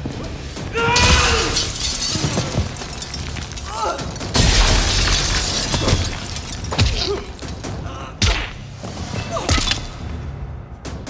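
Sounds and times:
action film music: 0:00.0 - 0:11.0.

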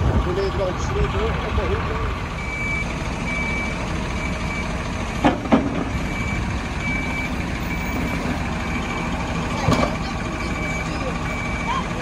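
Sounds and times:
diesel engine running: 0:00.0 - 0:12.0
reversing alarm beeping: 0:02.4 - 0:04.7, 0:05.9 - 0:12.0.

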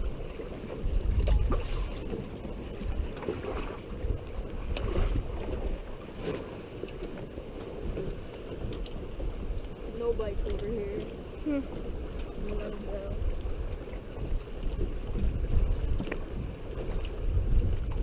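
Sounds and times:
wind buffeting microphone: 0:00.0 - 0:06.3, 0:07.0 - 0:18.0
waves lapping against boat hull: 0:00.0 - 0:18.0.

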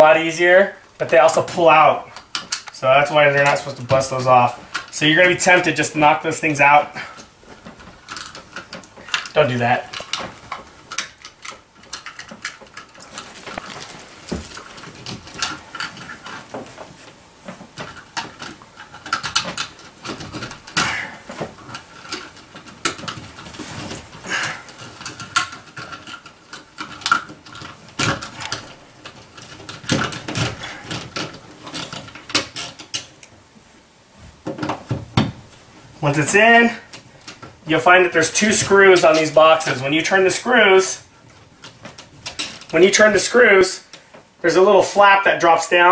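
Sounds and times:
plastic and cable clicks and scrapes: 0:07.2 - 0:33.3.

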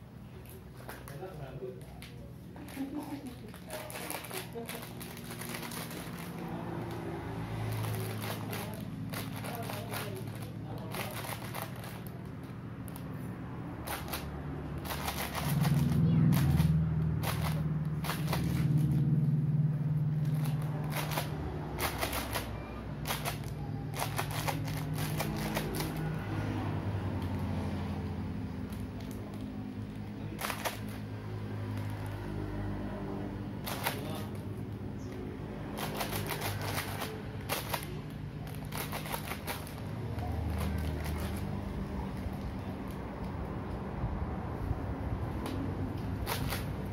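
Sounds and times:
plastic wrapper crackling: 0:00.5 - 0:07.0, 0:07.6 - 0:13.1, 0:13.8 - 0:19.0, 0:20.2 - 0:26.1, 0:35.7 - 0:42.7
plastic wrapper crinkling: 0:02.6 - 0:07.0, 0:07.6 - 0:13.0.

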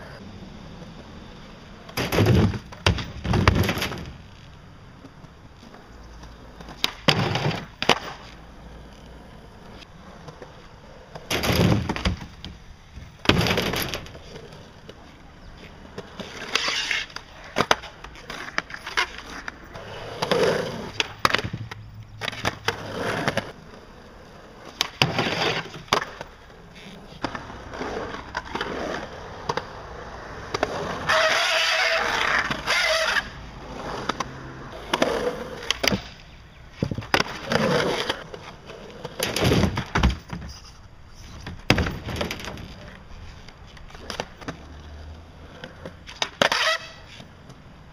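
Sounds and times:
skateboard grinding: 0:00.0 - 0:47.9
skateboard wheels rolling on concrete: 0:00.0 - 0:47.9
skateboard clacks and landings: 0:01.9 - 0:04.2, 0:05.0 - 0:08.4, 0:11.1 - 0:15.0, 0:15.9 - 0:23.6, 0:34.0 - 0:40.6, 0:41.2 - 0:43.0.

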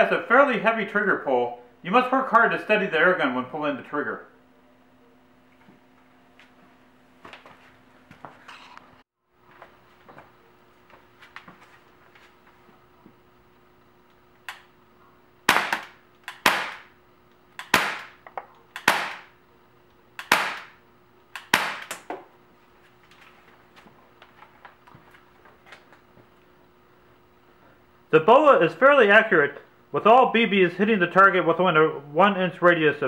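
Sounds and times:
air pistol pops: 0:15.5 - 0:16.9, 0:17.6 - 0:18.2, 0:18.8 - 0:19.2, 0:20.2 - 0:20.7, 0:21.4 - 0:22.1.

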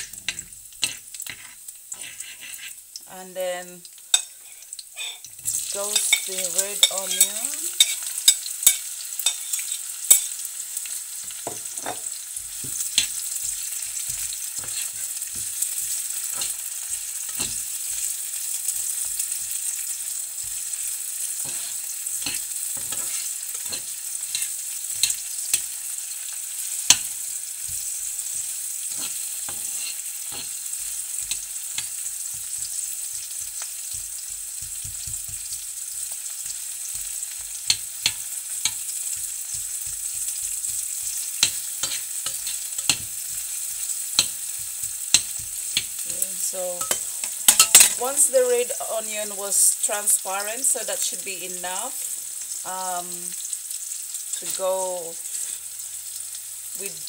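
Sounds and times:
fork scraping a pan: 0:00.0 - 0:02.8, 0:04.1 - 0:10.4, 0:11.4 - 0:48.1, 0:55.2 - 0:55.6
onion sizzling in oil: 0:00.0 - 0:57.0.

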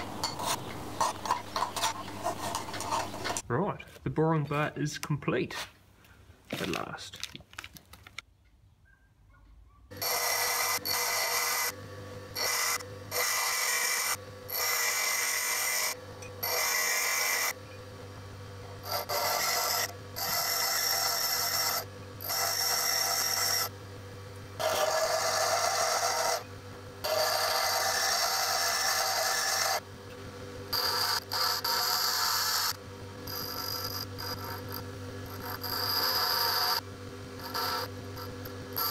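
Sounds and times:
bench grinder motor hum: 0:00.0 - 0:03.4, 0:09.9 - 0:38.9
steel grinding on wheel: 0:00.0 - 0:03.4, 0:09.9 - 0:17.8, 0:18.8 - 0:23.7, 0:24.6 - 0:29.8, 0:30.6 - 0:38.9.

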